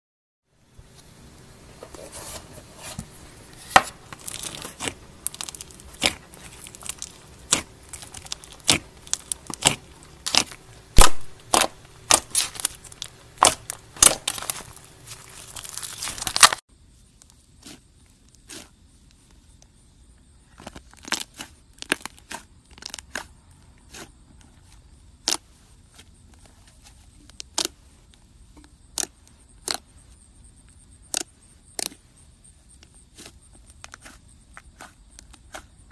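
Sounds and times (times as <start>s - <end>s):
slime crackling and popping: 4.0s - 16.6s
slime stretching with pops: 4.1s - 16.6s.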